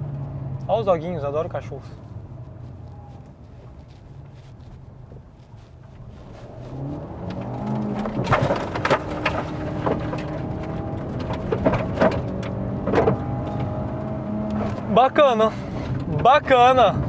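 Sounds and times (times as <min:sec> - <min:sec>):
car engine revving: 0:06.2 - 0:17.0.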